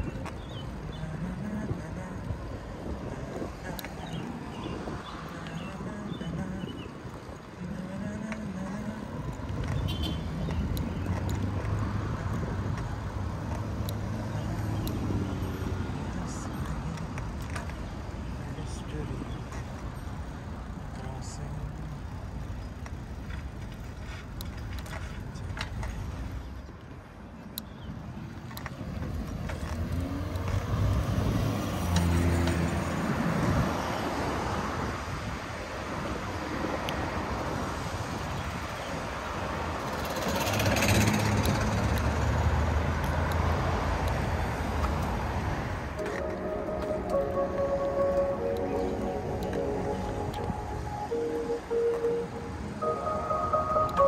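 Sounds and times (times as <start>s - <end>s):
vehicle engine humming: 0.0s - 26.6s, 39.2s - 54.0s
street traffic: 0.0s - 54.0s.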